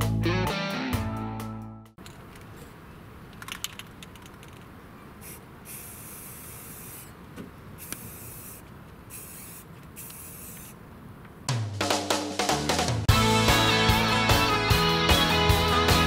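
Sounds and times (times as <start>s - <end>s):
spray paint can hissing: 5.2s - 7.2s, 7.8s - 10.8s.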